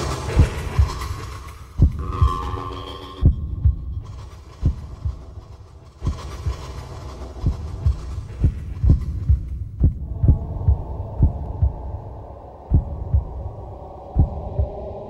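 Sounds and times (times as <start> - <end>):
heartbeat thumping: 0.0 - 2.4, 3.2 - 5.4, 6.0 - 15.0
low hum: 7.4 - 15.0.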